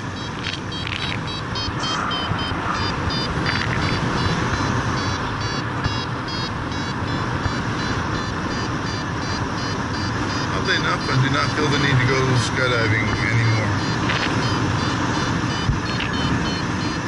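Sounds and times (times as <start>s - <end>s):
variometer beeping: 0.0s - 17.0s
wind on microphone: 0.4s - 6.6s.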